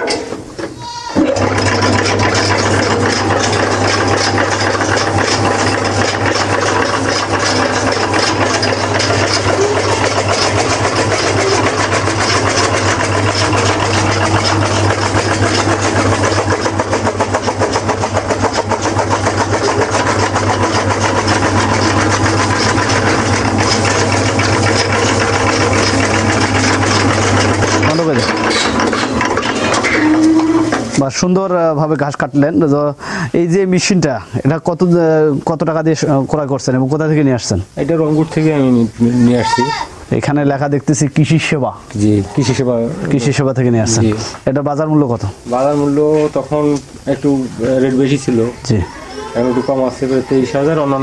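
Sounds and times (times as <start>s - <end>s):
motor humming: 0.0s - 31.0s, 45.4s - 51.0s.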